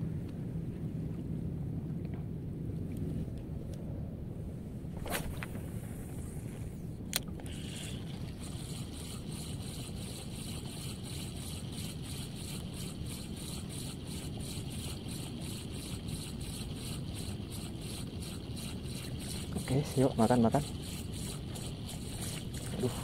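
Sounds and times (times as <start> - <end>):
reel ticking whir: 7.0 - 23.0
fishing reel clicks: 7.1 - 23.0.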